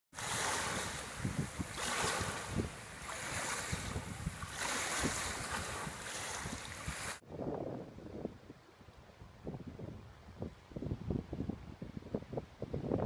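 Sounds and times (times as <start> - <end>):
floodwater rushing and splashing: 0.1 - 7.2
wind buffeting microphone: 0.2 - 13.0.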